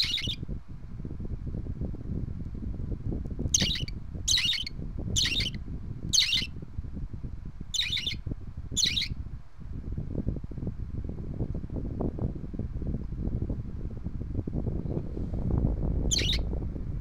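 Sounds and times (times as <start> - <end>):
bird chick high calls: 0.0 - 0.4, 3.6 - 6.5, 7.8 - 8.2, 8.8 - 9.1, 16.1 - 16.4
fan air rushing on microphone: 0.0 - 17.0.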